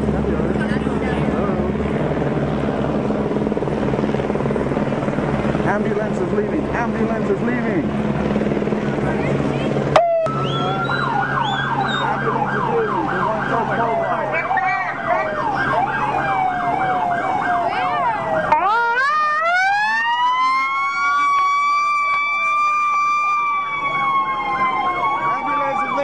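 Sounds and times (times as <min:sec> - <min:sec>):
ambulance siren: 0:09.4 - 0:26.0.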